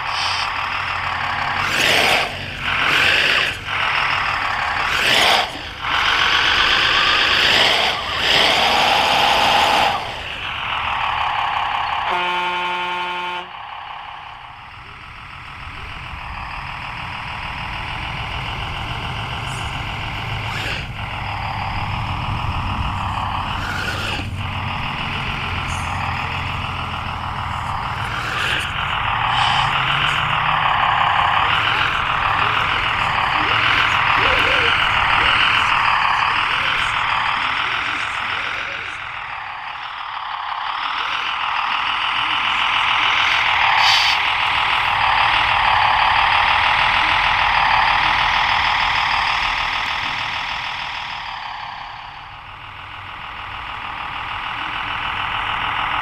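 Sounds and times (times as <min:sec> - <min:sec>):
simulated diesel engine through speaker: 0:00.0 - 0:56.0
steady horn: 0:12.0 - 0:13.6.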